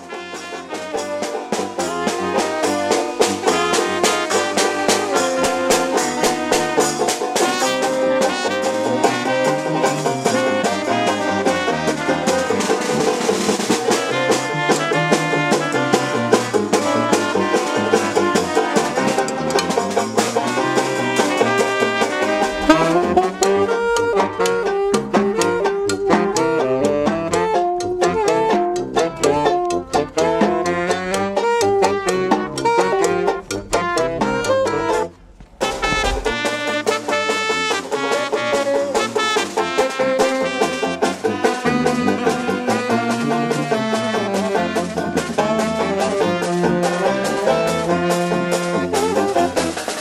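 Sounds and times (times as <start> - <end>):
drums beat: 0.0 - 27.2, 28.2 - 41.3
banjo: 0.0 - 50.0
saxophones and trumpet: 0.0 - 50.0
sousaphone bass line: 20.6 - 37.3.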